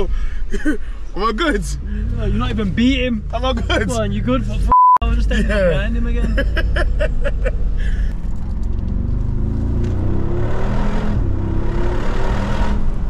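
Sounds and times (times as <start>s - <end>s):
exhaust rush: 0.0s - 13.0s
road noise: 0.0s - 13.0s
car engine accelerating hard: 1.4s - 13.0s.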